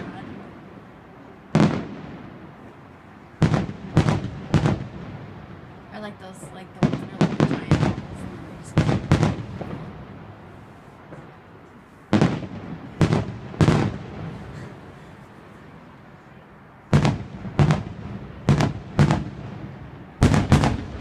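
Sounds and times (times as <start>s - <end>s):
firework shells bursting: 20.2s - 21.0s.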